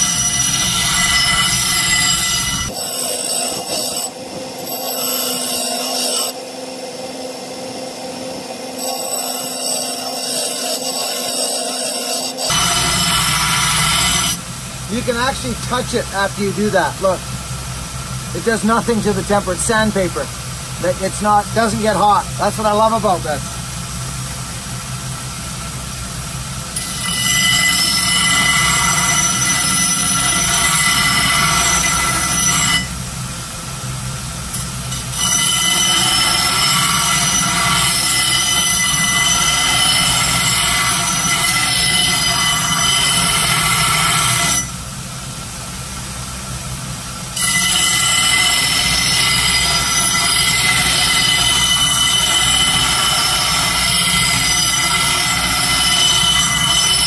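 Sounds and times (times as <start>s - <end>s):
axe head grinding on sander belt: 0.0s - 6.4s, 8.8s - 17.2s, 26.8s - 32.9s, 34.5s - 44.7s, 47.4s - 57.0s.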